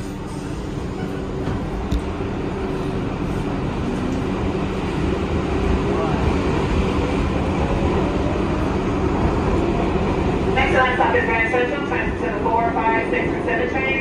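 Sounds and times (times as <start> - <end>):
subway train wheels and motors rumbling: 0.0 - 14.0.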